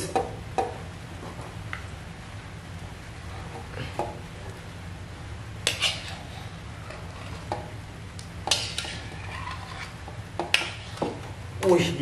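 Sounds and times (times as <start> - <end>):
low steady hum: 0.0 - 12.0
metal utensil scraping a wok: 5.6 - 7.6, 8.5 - 11.2.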